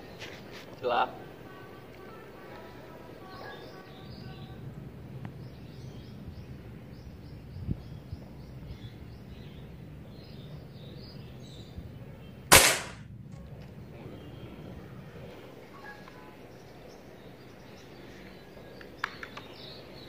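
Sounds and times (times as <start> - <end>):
air rifle shot: 12.5 - 13.1.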